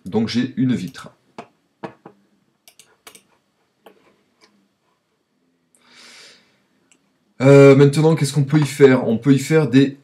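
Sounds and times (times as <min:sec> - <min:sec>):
computer mouse clicks: 0:02.6 - 0:04.6.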